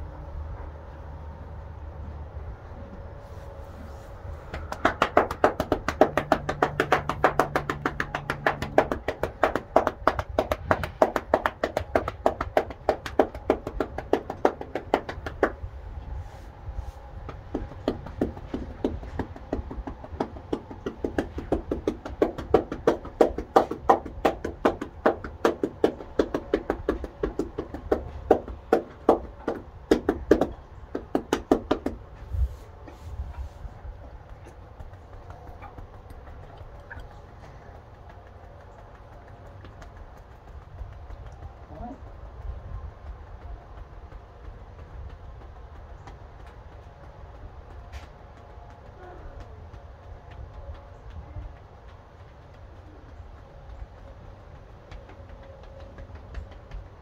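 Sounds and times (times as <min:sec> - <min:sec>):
hands slapping horse's body: 0:03.8 - 0:15.7, 0:16.3 - 0:42.2, 0:44.1 - 0:57.0.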